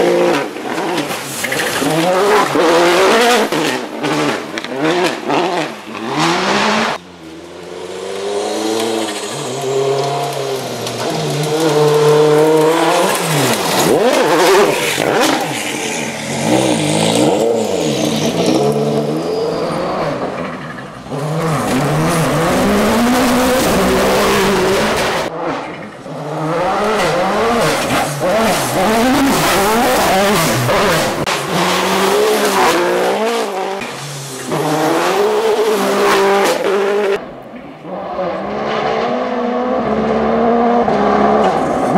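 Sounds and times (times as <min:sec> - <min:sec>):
rally car engine revving: 0:00.0 - 0:41.9
gravel hissing under tyres: 0:07.3 - 0:18.8, 0:27.7 - 0:35.9.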